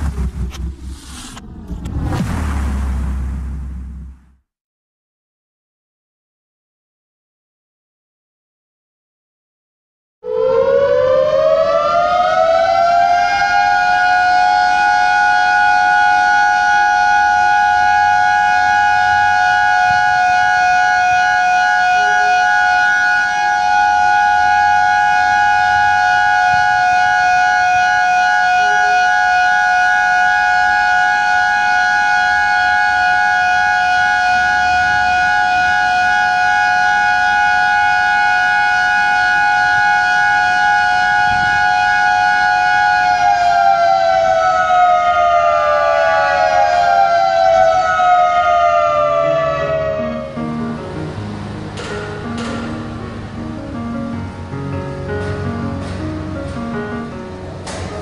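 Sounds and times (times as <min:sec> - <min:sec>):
siren wailing: 0:10.2 - 0:50.5.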